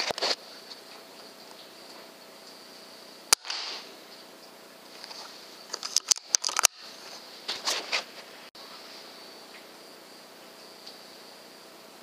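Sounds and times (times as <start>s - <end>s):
air rifle shot: 3.3s - 4.0s.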